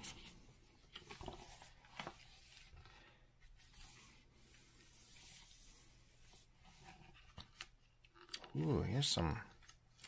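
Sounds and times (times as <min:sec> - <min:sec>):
book pages turning: 0:00.0 - 0:10.0
soft paper ticks: 0:07.4 - 0:10.0.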